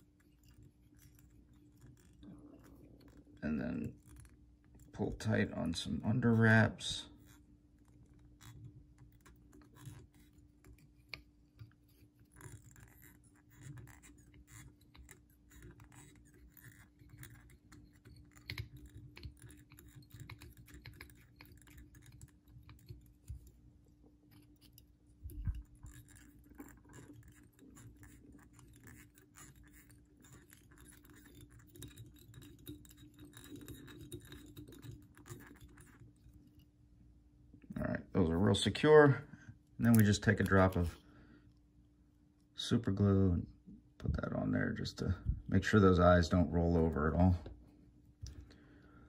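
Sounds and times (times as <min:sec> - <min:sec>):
thread being wrapped on a hook: 0:00.0 - 0:36.8.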